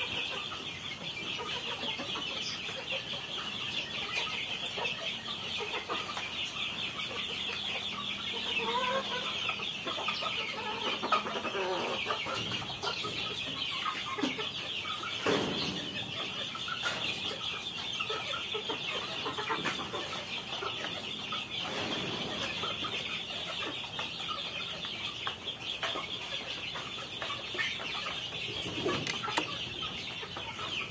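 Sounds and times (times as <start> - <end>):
chicks cheeping and clucking: 0.0 - 30.9.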